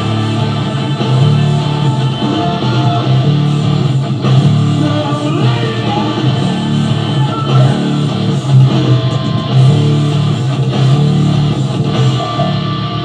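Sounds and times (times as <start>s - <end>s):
distorted electric guitar: 0.0s - 13.0s
electric bass guitar: 0.0s - 13.0s
heavy rock music: 0.0s - 13.0s.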